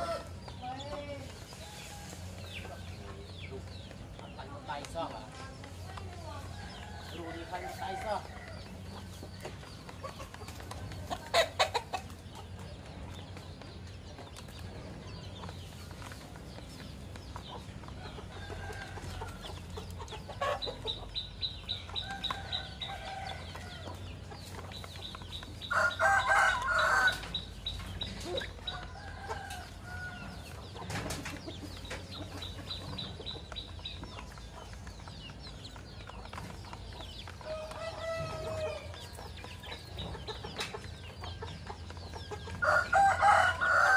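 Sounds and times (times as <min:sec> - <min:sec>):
chickens clucking: 0:00.0 - 0:43.9
rooster crowing: 0:25.7 - 0:27.2, 0:42.6 - 0:43.9.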